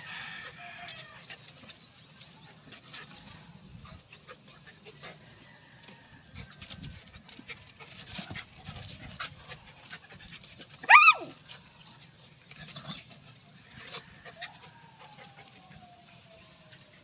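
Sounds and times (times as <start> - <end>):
dogs panting: 0.1 - 17.0
dogs scuffling on concrete: 5.0 - 15.9
dog yelping: 10.8 - 11.4.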